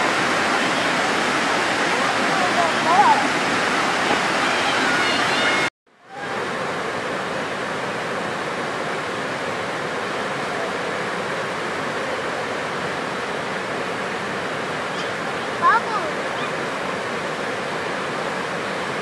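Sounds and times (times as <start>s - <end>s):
white water rushing over rapids: 0.0s - 19.0s.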